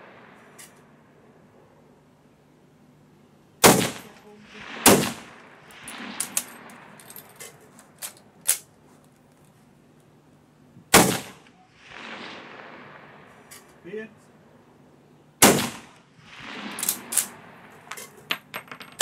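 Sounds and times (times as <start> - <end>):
loud rifle shots with echo: 3.6 - 7.0, 10.9 - 13.4, 15.4 - 17.7.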